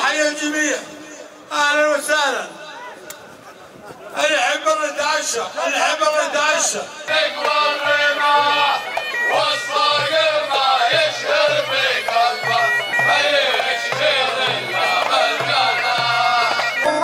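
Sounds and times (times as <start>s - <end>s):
folk dance music with wind instrument: 6.9s - 17.0s.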